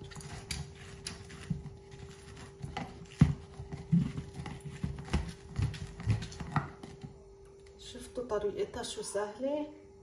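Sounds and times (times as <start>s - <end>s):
plastic citrus juicer knocking and rubbing: 0.0s - 7.2s.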